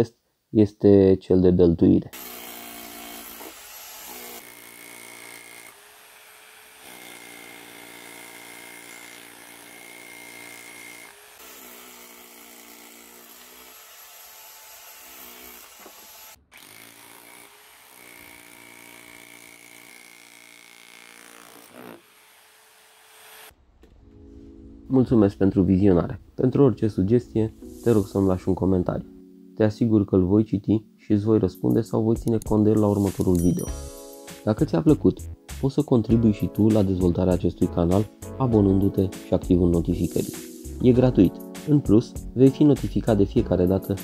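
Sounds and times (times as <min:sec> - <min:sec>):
rotary hammer chiselling concrete: 0:02.2 - 0:22.1.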